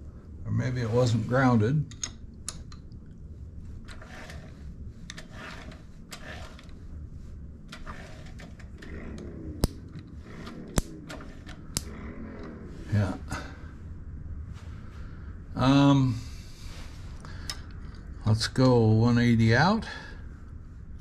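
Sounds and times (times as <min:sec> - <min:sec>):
wrench scraping and rattling on metal: 0:03.8 - 0:06.8
sharp snaps: 0:08.8 - 0:12.6.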